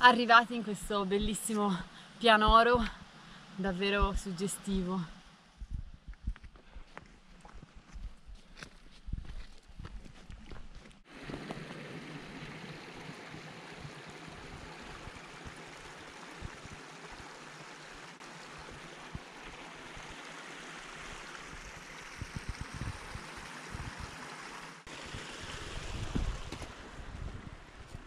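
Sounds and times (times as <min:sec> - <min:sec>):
low thumps: 0:05.5 - 0:06.6
stream rushing over stones: 0:11.1 - 0:28.0.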